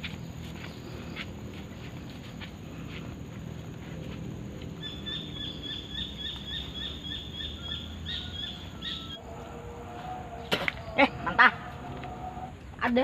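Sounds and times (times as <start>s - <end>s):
bird chirping: 4.8s - 12.5s.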